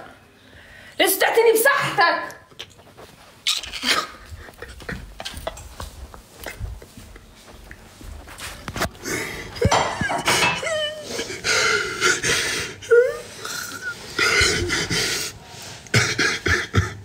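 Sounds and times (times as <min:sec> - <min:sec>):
breathy wheezing vocal sounds: 0:10.8 - 0:17.0.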